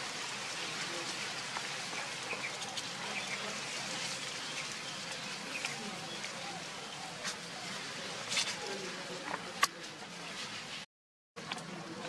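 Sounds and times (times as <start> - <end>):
steady hiss: 0.0 - 10.8.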